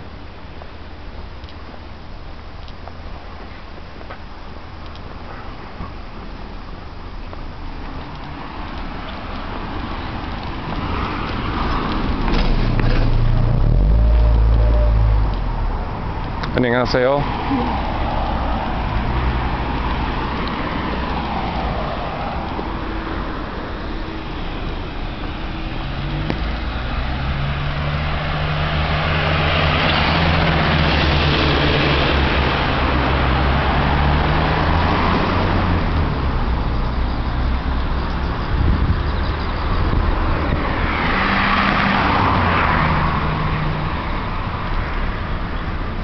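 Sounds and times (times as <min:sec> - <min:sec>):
street traffic: 0:00.0 - 0:46.0
vehicle passing with low hum: 0:08.5 - 0:44.5.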